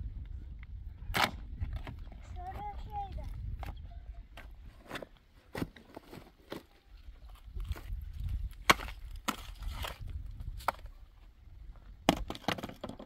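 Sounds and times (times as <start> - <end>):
wood knocking and snapping: 12.0 - 13.0.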